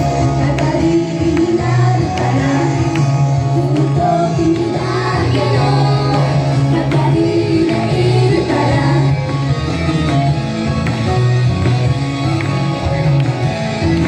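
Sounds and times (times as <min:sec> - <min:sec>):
women singing pop song: 0:00.0 - 0:09.2
recorded backing track: 0:00.0 - 0:14.0.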